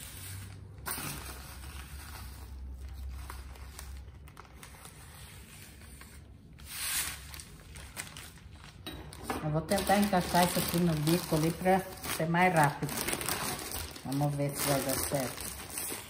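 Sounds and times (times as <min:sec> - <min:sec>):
plastic crinkling and rustling: 0:00.0 - 0:16.0.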